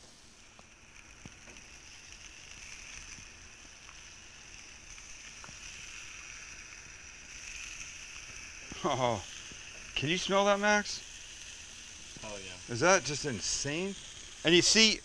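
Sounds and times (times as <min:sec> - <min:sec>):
meat sizzling on grill: 0:00.0 - 0:15.0.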